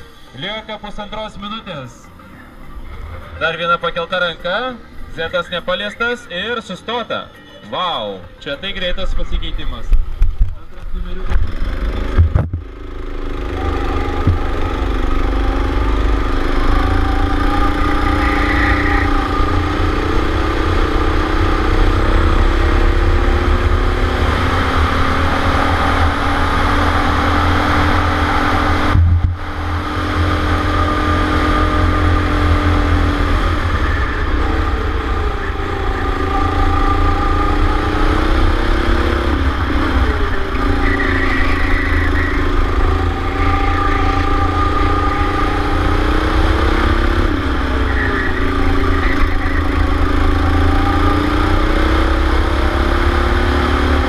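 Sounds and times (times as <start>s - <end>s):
rumble of wind and vibration: 0.0s - 54.0s
kart engine revving: 10.8s - 54.0s.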